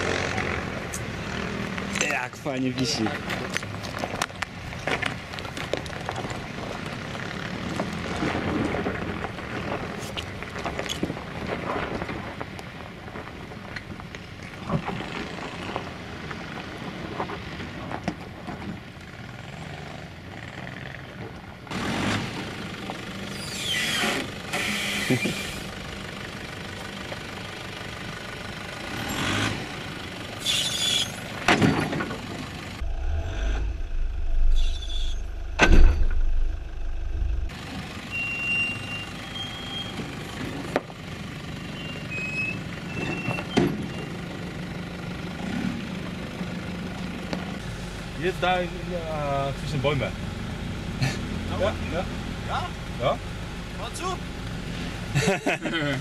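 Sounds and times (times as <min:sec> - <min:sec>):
engine running at low revs: 0:32.1 - 0:38.2
rushing noise: 0:32.8 - 0:37.5.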